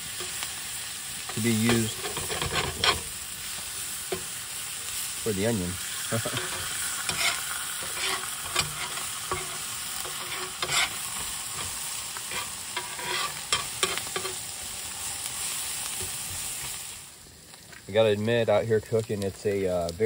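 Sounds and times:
burgers and onions sizzling: 0.0 - 20.0
spatula scraping and tapping griddle: 1.2 - 3.1, 4.1 - 4.3, 6.2 - 14.5, 15.9 - 16.8.

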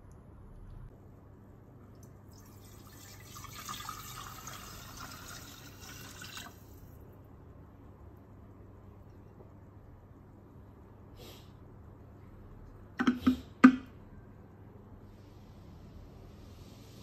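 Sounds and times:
water pouring into steel bowl: 2.3 - 6.8.

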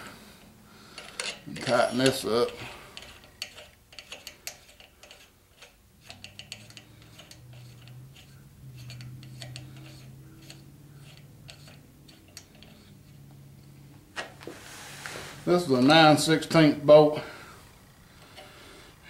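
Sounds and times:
low steady hum: 0.0 - 19.0
nut spinning on bolt ticking: 0.9 - 13.8.

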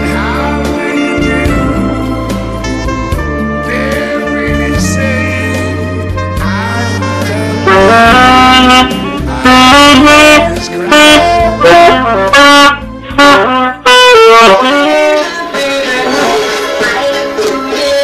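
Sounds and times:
saxophone melody: 0.0 - 18.0
soft musical accompaniment: 0.0 - 18.0.

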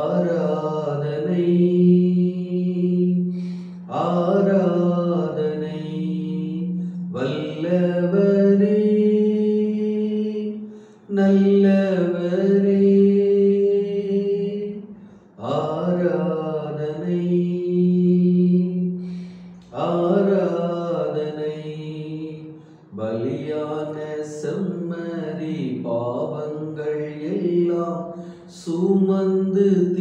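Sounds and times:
man singing worship song: 0.0 - 30.0.

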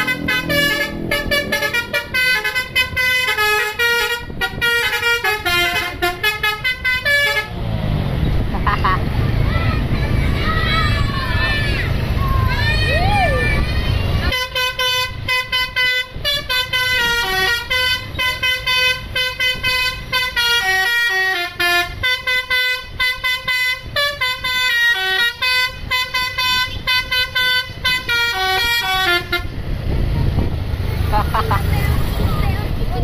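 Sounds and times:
bus horn playing melody: 0.0 - 7.6, 14.3 - 29.6.

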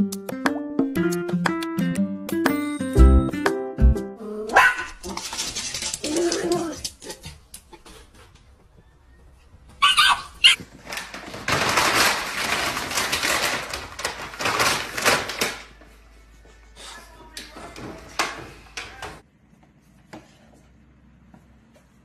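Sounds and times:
dog yipping: 4.5 - 5.0, 9.8 - 10.6
plastic bag rustling on floor: 10.6 - 16.2.

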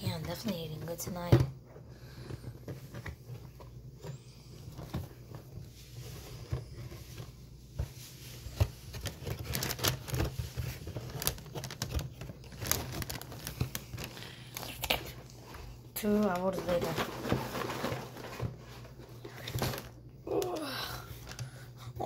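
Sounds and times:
plastic bag crinkling: 2.1 - 21.6
cardboard box opening: 8.6 - 14.1.

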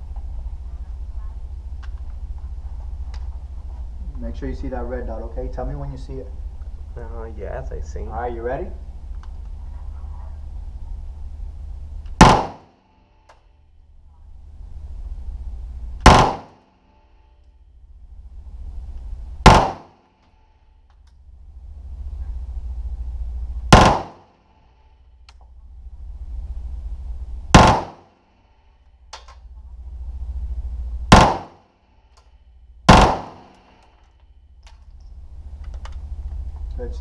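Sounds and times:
low rumble: 0.0 - 37.0
gunshots with echo: 12.2 - 12.7, 16.0 - 16.6, 19.4 - 20.0, 23.7 - 24.3, 27.6 - 28.1, 31.1 - 31.6, 32.9 - 33.8.

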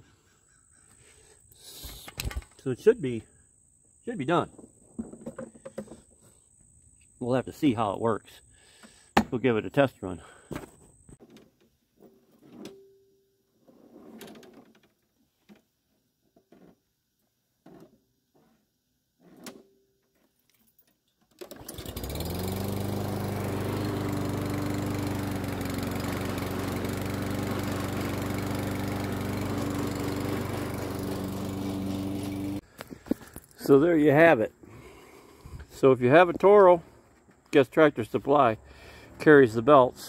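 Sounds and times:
lawn mower engine running: 21.4 - 33.6.

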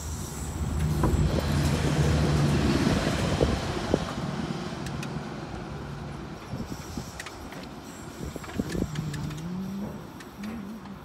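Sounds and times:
diesel train passing: 0.0 - 11.0
sharp clicks: 4.8 - 5.2, 8.4 - 11.0.

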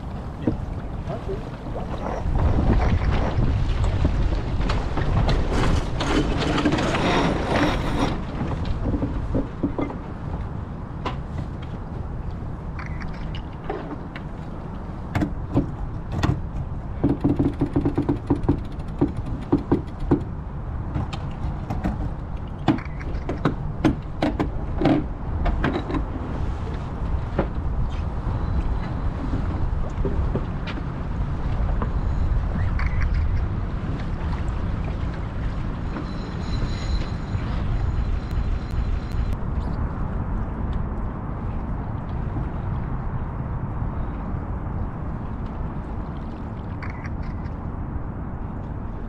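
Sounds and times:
wind rushing over microphone: 0.0 - 49.0
boat fittings knocking and clicking: 15.1 - 26.1.

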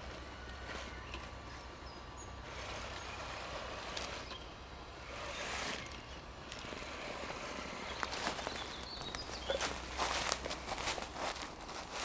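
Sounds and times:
electric toy car motor whirring: 2.4 - 8.6.

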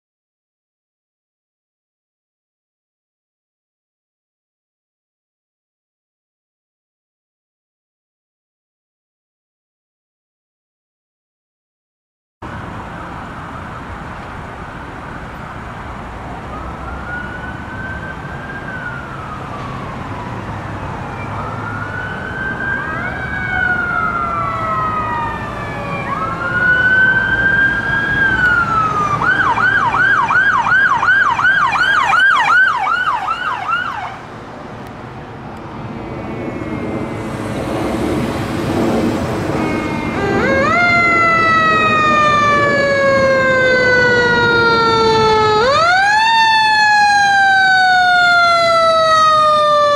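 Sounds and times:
siren wailing and yelping: 16.5 - 34.2, 35.8 - 49.9.

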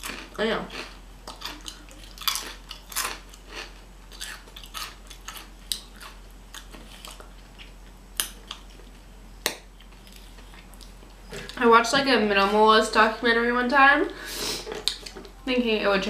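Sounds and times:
person crunching chips: 0.0 - 9.0.

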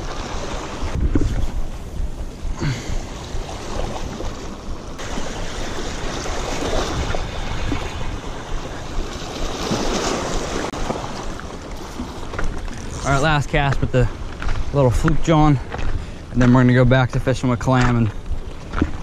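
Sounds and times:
wind buffeting microphone: 0.0 - 16.7
small waves splashing against rocks: 3.0 - 14.0.

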